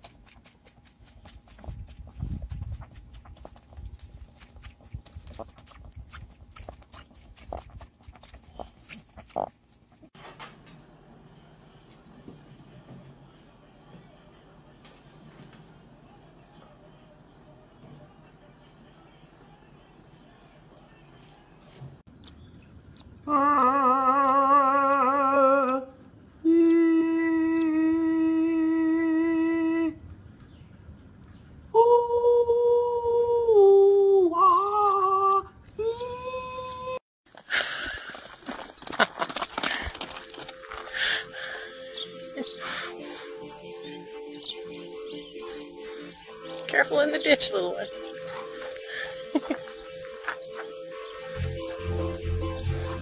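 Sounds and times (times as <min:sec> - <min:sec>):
goat sucking on pacifier: 0:00.0 - 0:10.1
wind rumble on microphone: 0:01.6 - 0:03.2
nestling calling: 0:39.7 - 0:53.0.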